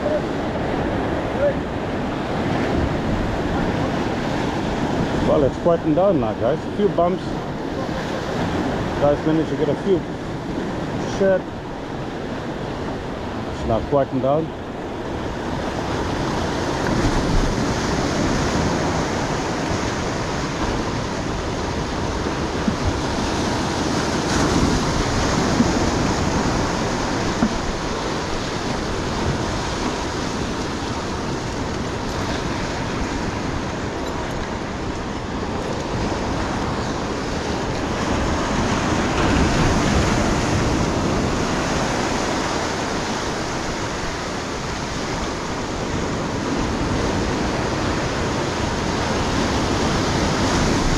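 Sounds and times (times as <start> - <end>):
ocean surf breaking over rocks: 0.0 - 50.9.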